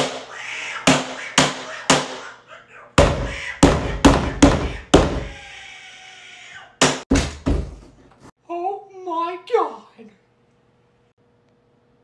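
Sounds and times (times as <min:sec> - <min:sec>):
pounding on a door: 0:03.0 - 0:05.4, 0:06.8 - 0:08.0.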